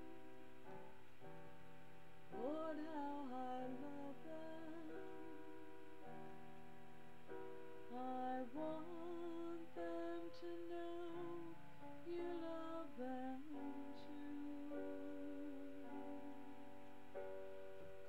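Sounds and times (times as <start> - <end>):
soft sustained chords: 0.0 - 18.0
woman singing slow song: 2.3 - 5.6, 7.9 - 16.8.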